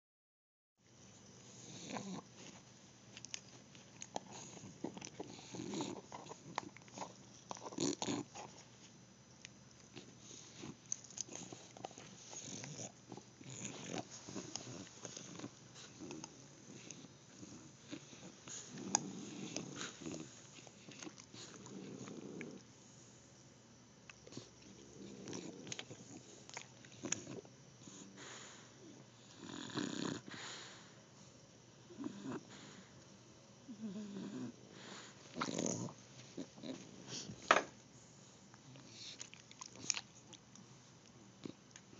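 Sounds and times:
dog chewing: 1.9 - 8.7, 9.8 - 22.6, 38.6 - 40.7
dog noisy breathing: 9.9 - 23.4, 24.2 - 28.8, 29.8 - 31.4, 34.3 - 40.3
dog teeth gnawing a hard chew: 39.0 - 40.7.

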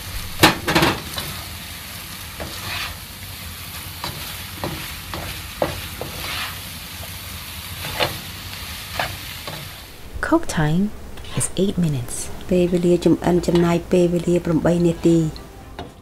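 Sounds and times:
food sizzling in a wok: 0.0 - 16.0
spatula scraping a pan: 2.2 - 3.1, 3.9 - 7.2, 7.8 - 9.8.

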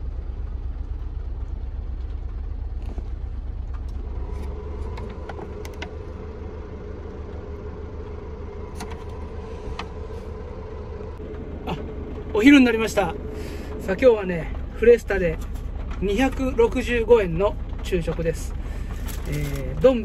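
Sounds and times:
steady hum: 0.0 - 15.4
car engine idling: 0.0 - 20.0.

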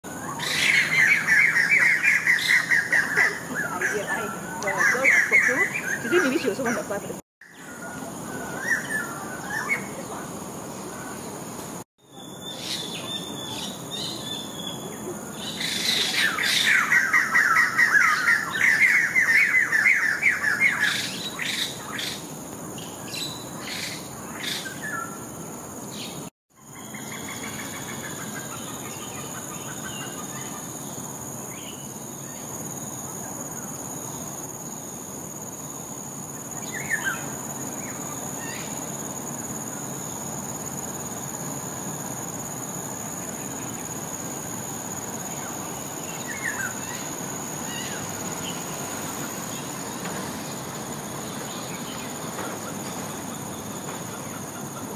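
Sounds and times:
birds chattering calls: 0.2 - 11.6, 12.2 - 32.8.

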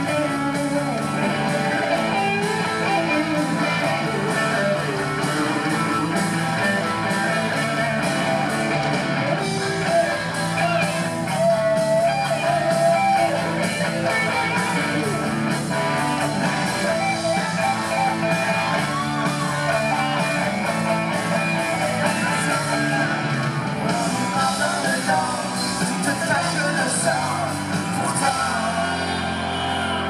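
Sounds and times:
bass guitar: 0.0 - 30.0
drum kit: 0.0 - 30.0
electric guitars: 0.0 - 30.0.

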